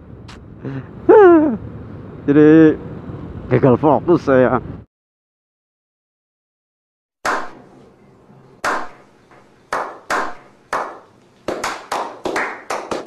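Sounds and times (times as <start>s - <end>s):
group of people clapping: 9.8s - 13.0s.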